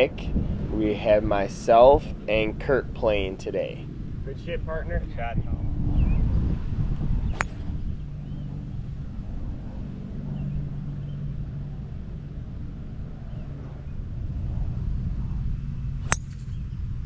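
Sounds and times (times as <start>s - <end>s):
low steady hum: 0.0s - 17.0s
golf club striking ball: 7.3s - 7.7s, 16.0s - 16.6s.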